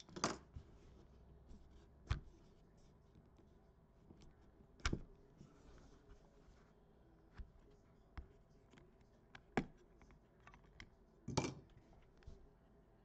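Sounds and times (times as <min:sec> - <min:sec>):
cards and plastic holders clicking: 0:08.2 - 0:12.3.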